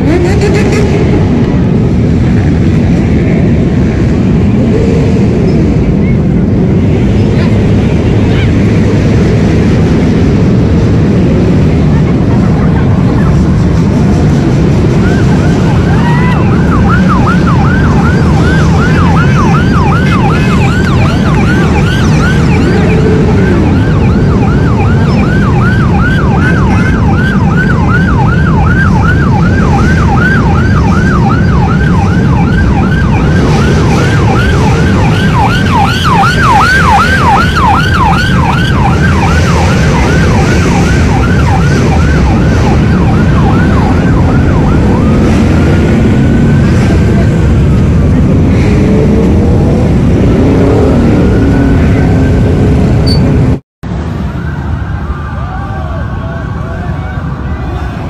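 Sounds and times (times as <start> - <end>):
low rumble of traffic and crowd: 0.0 - 58.0
electronic siren yelping: 14.8 - 48.5.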